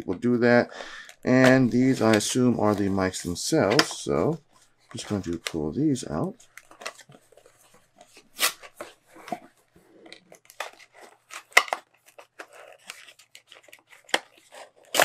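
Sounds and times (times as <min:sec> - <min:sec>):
cardboard and paper rustling: 0:01.3 - 0:15.0
sharp cardboard snaps: 0:14.1 - 0:15.0.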